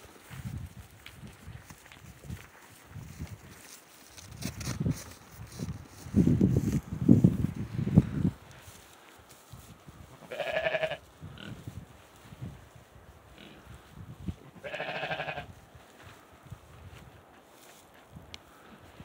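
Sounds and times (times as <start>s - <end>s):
sheep bleating: 10.2s - 11.0s, 14.5s - 15.5s.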